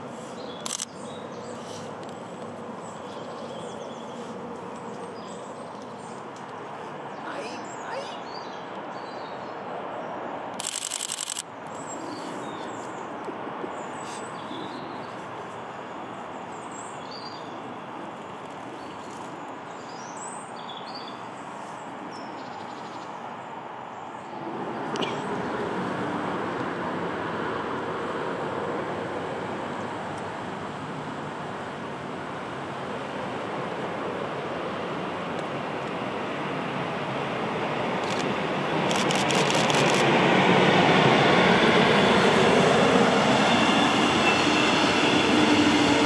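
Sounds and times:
distant town rumble: 0.0s - 46.0s
birds chirping: 0.2s - 18.0s.

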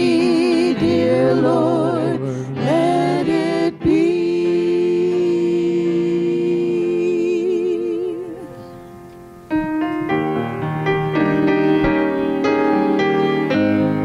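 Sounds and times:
worship singers holding a note: 0.0s - 9.6s
keyboard chord: 0.0s - 14.0s.

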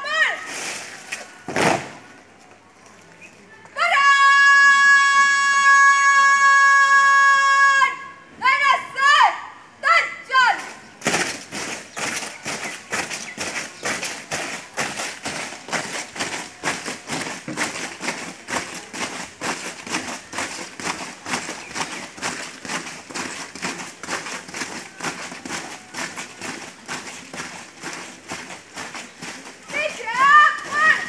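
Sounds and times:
boots marching in step: 10.6s - 31.0s.

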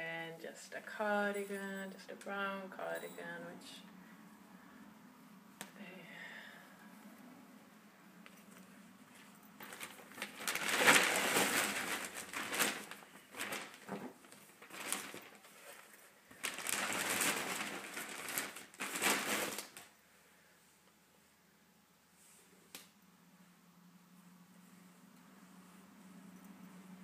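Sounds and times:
clothes rustling: 8.2s - 19.9s.

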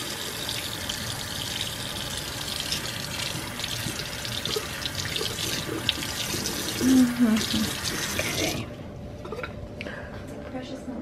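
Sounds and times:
water running from faucet: 0.0s - 8.8s.

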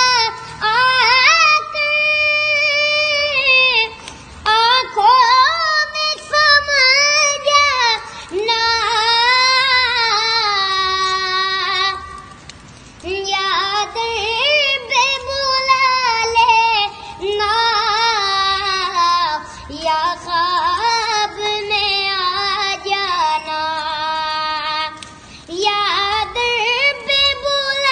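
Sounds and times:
boy singing devotional song: 0.0s - 27.9s.

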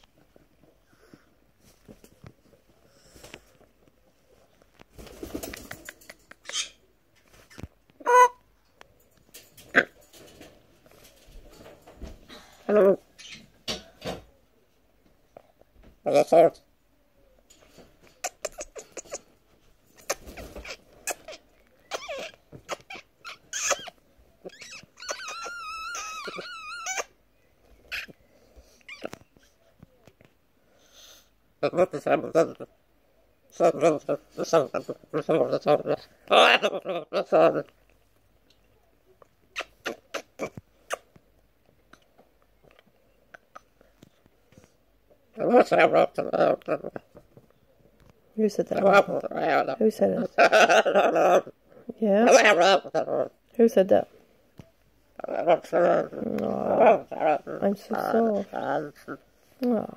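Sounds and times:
parrot warbling call: 8.0s - 8.4s
parrot beak clicks and scratches: 18.0s - 19.3s
macaw hissing: 20.0s - 27.1s
macaw cooing and grumbling: 20.1s - 27.1s, 33.5s - 37.7s, 45.4s - 47.0s, 48.8s - 51.6s, 55.2s - 59.9s.

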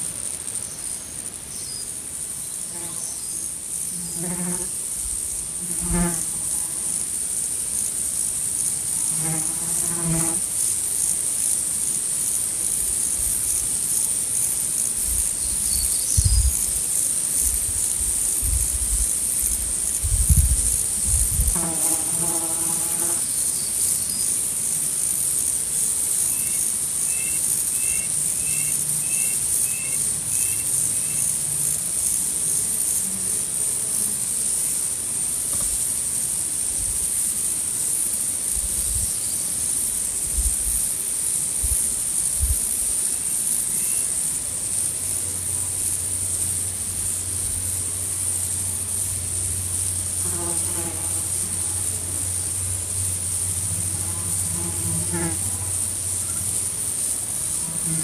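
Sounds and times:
high-pitched insect chorus: 0.0s - 58.0s.

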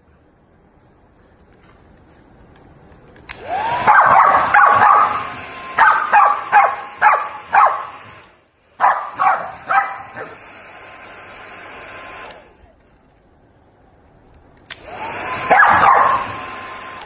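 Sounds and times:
hair dryer blowing: 3.3s - 12.8s, 14.7s - 17.0s
dog barking: 3.8s - 8.1s, 8.8s - 10.4s, 15.5s - 16.4s.

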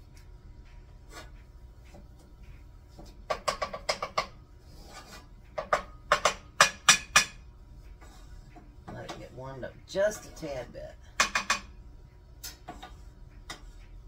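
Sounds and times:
spatula tapping on skillet: 0.2s - 4.4s, 5.5s - 9.3s, 11.1s - 11.8s, 12.4s - 14.0s.

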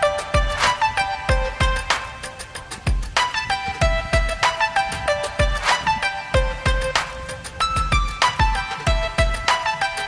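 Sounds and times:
kick drum: 2.9s - 3.1s, 3.8s - 4.4s, 5.4s - 5.6s, 6.4s - 6.9s, 7.8s - 9.5s.

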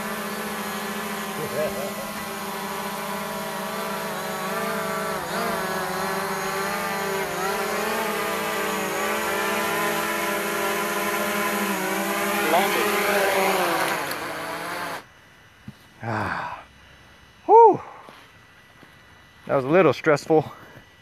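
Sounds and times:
drone propellers whining: 0.0s - 15.1s.

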